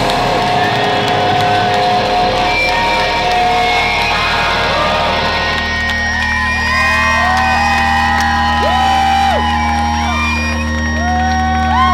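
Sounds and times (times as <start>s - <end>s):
rock band chord ringing out: 0.0s - 8.9s
crowd cheering and whooping: 0.0s - 11.9s.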